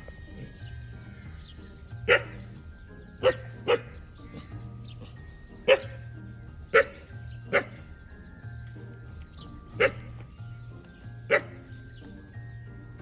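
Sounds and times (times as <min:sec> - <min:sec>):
background music: 0:00.0 - 0:13.0
dogs barking: 0:00.2 - 0:08.0, 0:09.5 - 0:12.1.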